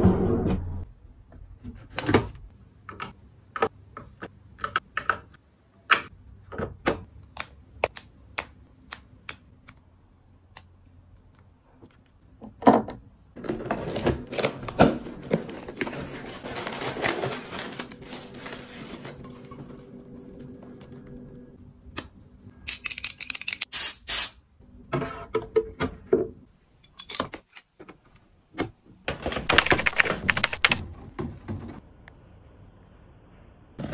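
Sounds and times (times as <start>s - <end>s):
plastic packaging crinkling: 13.8s - 19.2s.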